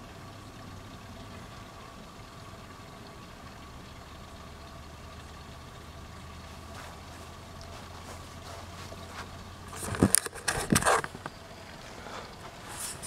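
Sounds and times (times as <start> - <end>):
camera handling rustles and knocks: 7.7 - 11.4.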